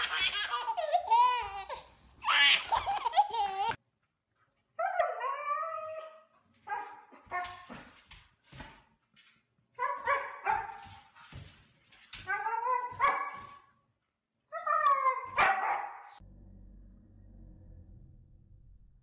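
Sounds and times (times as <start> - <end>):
husky yipping and yowling: 14.5 - 16.0.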